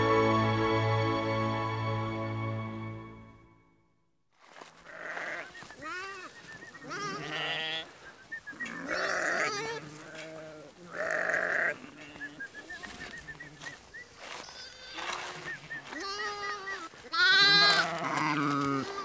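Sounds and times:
livestock bleating: 4.7 - 8.0, 8.6 - 19.0.

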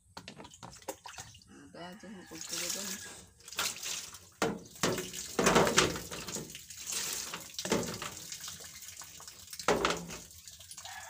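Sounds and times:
water pouring into glass jar: 2.2 - 11.0.

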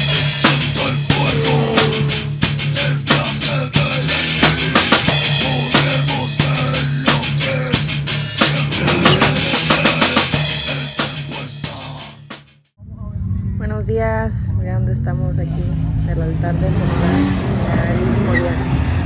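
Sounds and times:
drum kit and guitar music: 0.0 - 12.6.

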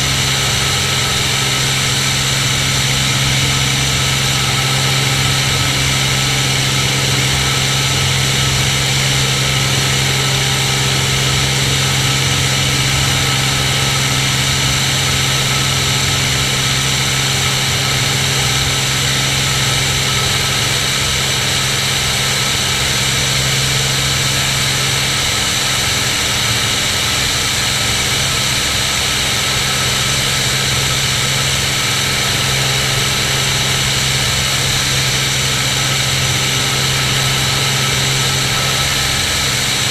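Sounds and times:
propeller plane engine drone: 0.0 - 39.9.

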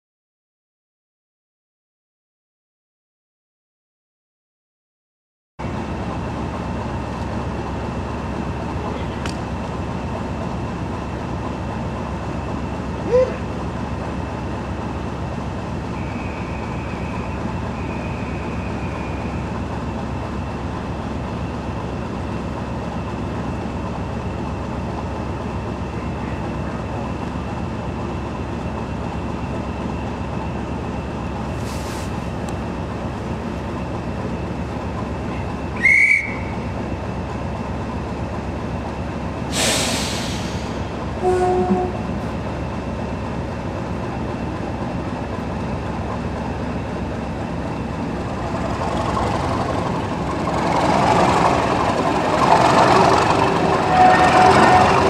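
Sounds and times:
diesel locomotive engine idling: 5.6 - 55.0
thin high whistle: 16.0 - 19.4, 35.8 - 36.6.

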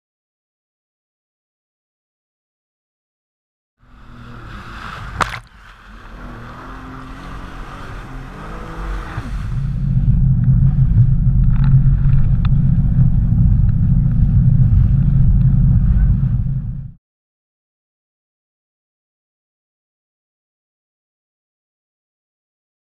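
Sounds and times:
jet ski engine humming: 3.8 - 17.0
water splashing: 3.9 - 13.7.

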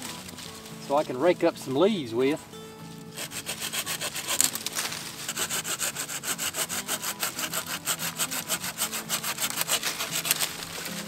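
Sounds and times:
saw cutting wooden branch: 3.0 - 11.0.

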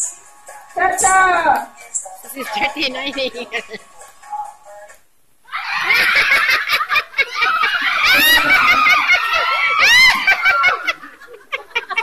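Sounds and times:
women shrieking and laughing: 5.5 - 12.0.

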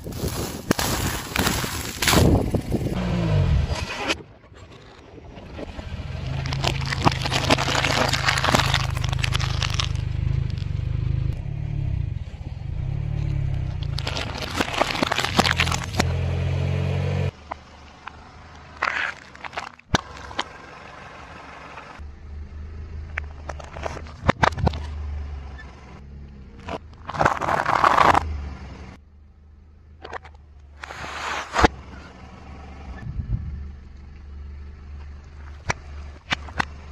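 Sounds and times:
car engine humming: 0.0 - 4.1, 5.3 - 36.9
dry pasta crunching: 0.1 - 2.6, 6.4 - 10.7, 13.8 - 16.0, 18.8 - 20.4.

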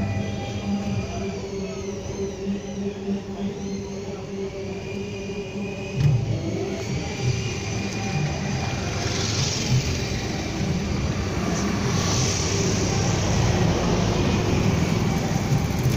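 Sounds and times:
street noise: 0.0 - 15.9
vehicle engine rumbling: 5.9 - 15.9
hiss: 6.6 - 15.9.

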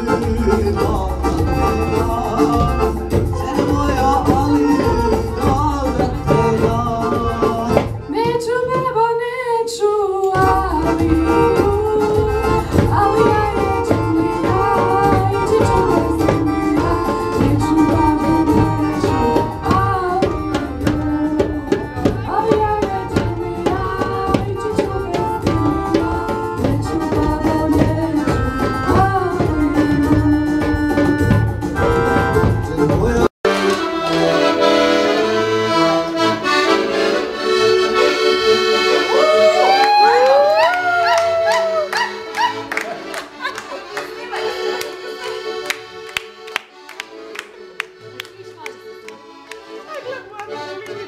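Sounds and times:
piano accordion playing: 0.0 - 8.9, 10.3 - 51.0
woman singing: 0.0 - 31.4
live band playing: 0.0 - 51.0.

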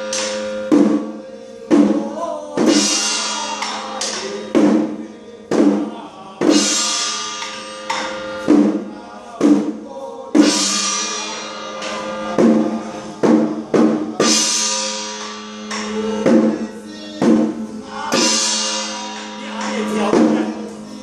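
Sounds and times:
drums: 0.0 - 21.0
crashing cymbals: 2.6 - 4.8, 6.5 - 8.9, 10.4 - 21.0
steady ringing tone: 6.6 - 9.2, 10.4 - 21.0.

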